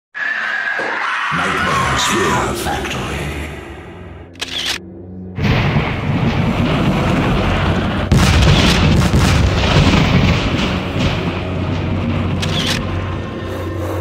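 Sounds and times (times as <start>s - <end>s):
dramatic soundtrack music: 0.6s - 14.0s
deep booming hits: 5.3s - 13.2s.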